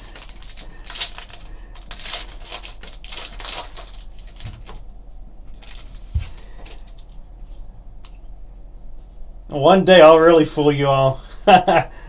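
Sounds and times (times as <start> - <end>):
cards rustling: 0.0 - 4.9, 5.5 - 7.2
wrapper crinkling as torn open: 0.0 - 4.9, 5.5 - 7.2.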